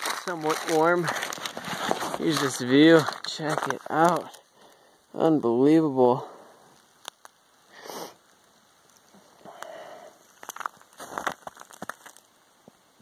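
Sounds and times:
handling noise rustling and crackling: 0.0s - 4.5s, 10.2s - 12.3s
small crackles and clicks: 0.0s - 4.9s, 6.7s - 7.5s, 8.2s - 12.8s.

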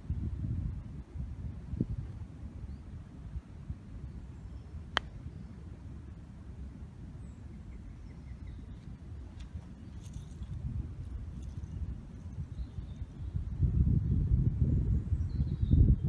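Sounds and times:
wind rumbling on microphone: 0.0s - 16.0s
golf club striking ball: 4.9s - 5.2s.

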